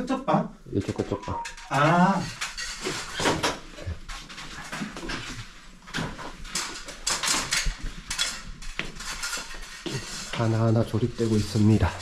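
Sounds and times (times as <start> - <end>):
irregular knocks and clatter: 2.3 - 11.8.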